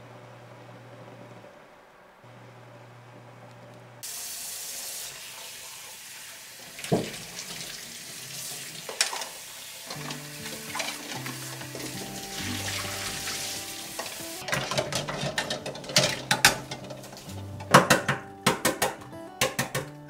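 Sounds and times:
tap water running into a pot: 4.0 - 17.9
soft music: 9.9 - 20.0
utensil knocking eggs: 14.5 - 20.0.

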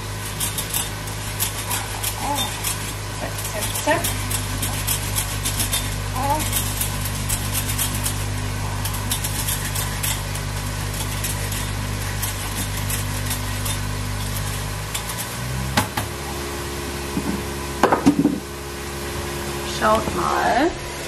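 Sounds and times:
carrots being grated by hand: 0.0 - 17.7
low mechanical hum: 0.0 - 21.0.

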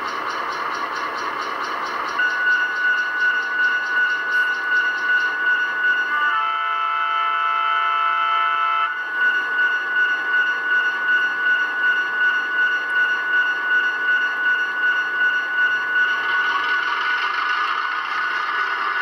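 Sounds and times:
throbbing diesel engine sound: 0.0 - 6.6, 8.9 - 19.0
locomotive horn chord: 6.1 - 9.0.

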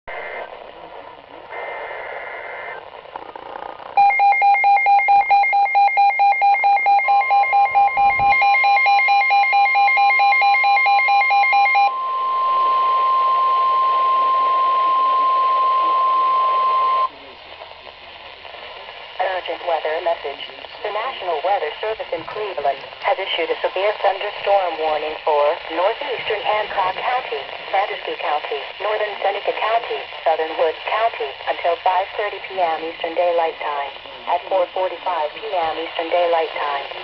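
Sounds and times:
data-burst tones: 3.9 - 10.6
fast pulsing beep alarm: 4.0 - 17.1
steady warning tone: 4.0 - 17.2.

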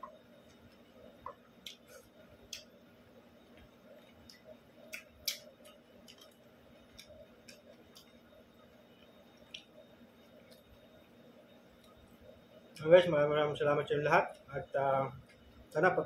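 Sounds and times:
man chewing: 3.4 - 8.1.

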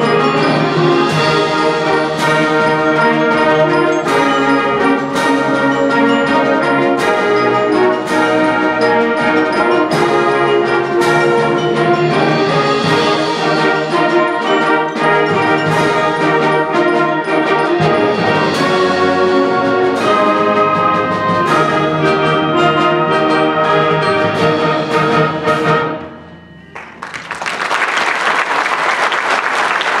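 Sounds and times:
concert band playing: 0.0 - 28.1
percussion hits: 0.0 - 29.0
audience applause: 26.8 - 30.0.

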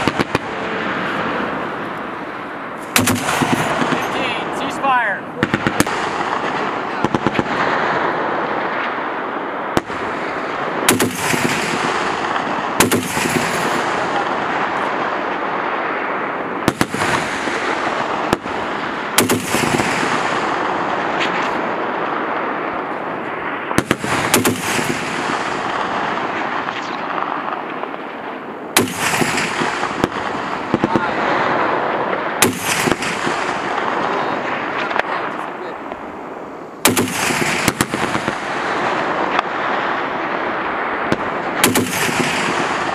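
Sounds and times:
rolling gunshot echo: 2.8 - 4.6, 10.8 - 14.7, 15.8 - 22.5, 23.6 - 28.1, 28.8 - 35.1, 36.8 - 40.1, 41.0 - 42.9
heavy machine gun firing: 2.9 - 4.4, 10.8 - 14.6, 16.6 - 21.5, 23.8 - 26.0, 28.8 - 31.8, 32.4 - 34.2, 36.8 - 38.8, 41.5 - 42.9.

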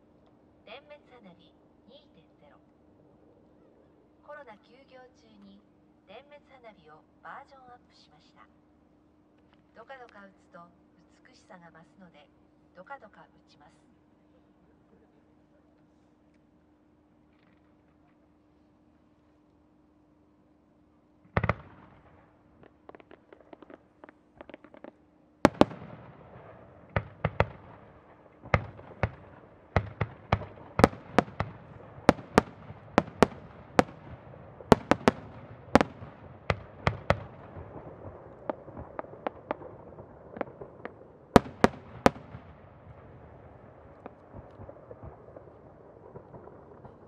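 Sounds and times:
firework shells bursting: 21.3 - 43.1
rumble: 21.3 - 47.0
firework crackling: 21.4 - 47.0.

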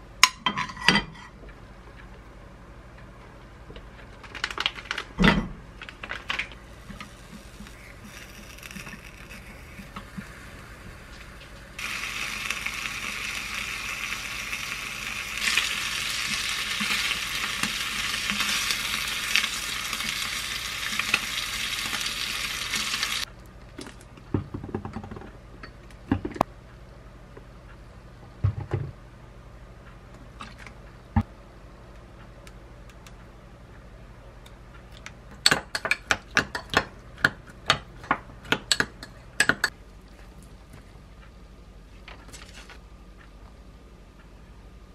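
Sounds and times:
meat sizzling in a frying pan: 6.9 - 23.3.

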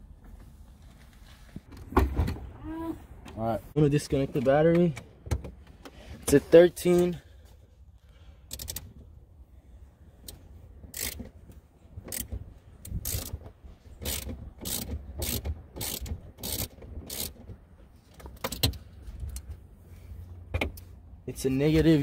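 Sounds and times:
wrench clicking on nut: 8.5 - 8.9, 10.2 - 11.3, 12.1 - 13.4, 14.0 - 17.4.

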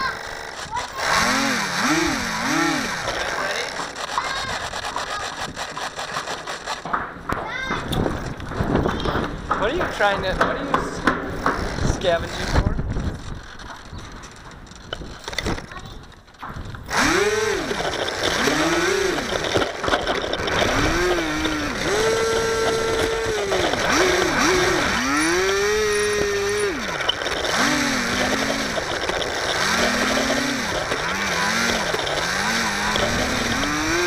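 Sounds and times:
model plane electric motor whining: 0.0 - 6.8, 16.8 - 34.0.

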